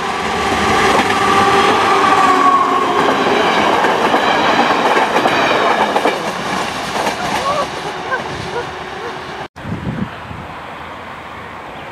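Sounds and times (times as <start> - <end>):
steady train whine: 0.0 - 11.6
train wheels clattering on rails: 0.4 - 8.6.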